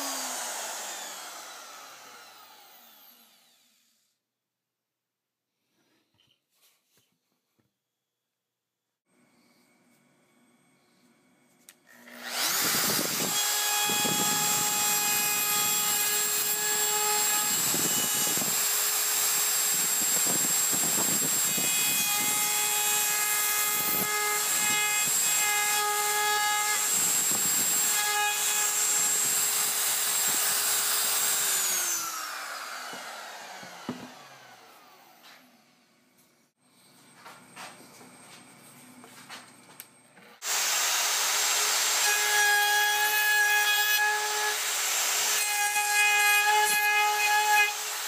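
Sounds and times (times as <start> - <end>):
router high whine: 0.0 - 3.8, 11.9 - 22.9, 26.5 - 35.6
router bit grinding wood: 0.0 - 4.0, 11.9 - 35.6, 40.4 - 48.0.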